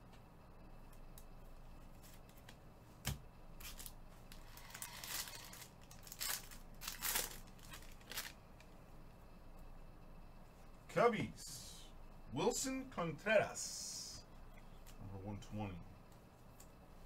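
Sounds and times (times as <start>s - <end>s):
plastic cards handled: 2.0s - 8.7s.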